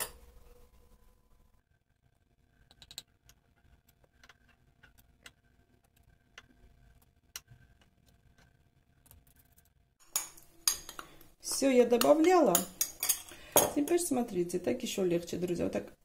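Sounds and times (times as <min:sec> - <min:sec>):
metal spoons clicking on bowl: 0:12.0 - 0:14.0.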